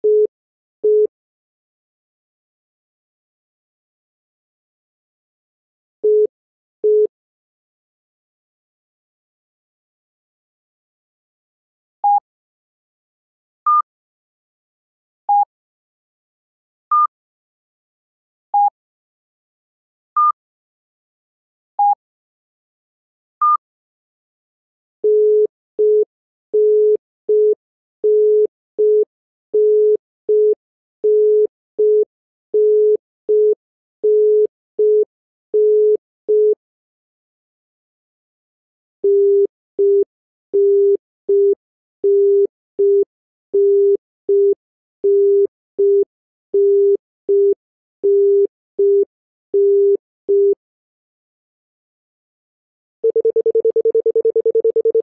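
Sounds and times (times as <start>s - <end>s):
continuous telephone tone: 25.0s - 36.6s, 39.0s - 43.0s, 46.6s - 50.6s, 53.0s - 55.0s
telephone congestion tone beeping: 53.0s - 55.0s.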